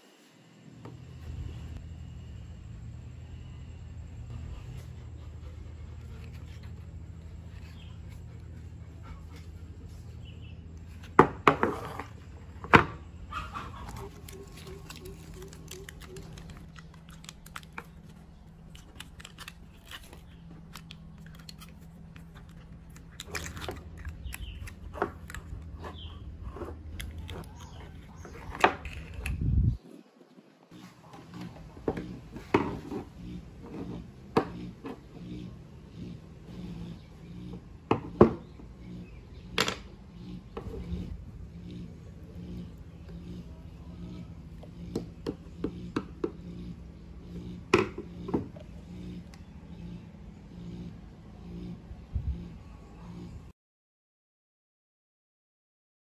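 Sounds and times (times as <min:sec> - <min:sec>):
steady low hum: 0:00.0 - 0:53.5
aluminium foil crinkling: 0:13.8 - 0:25.6.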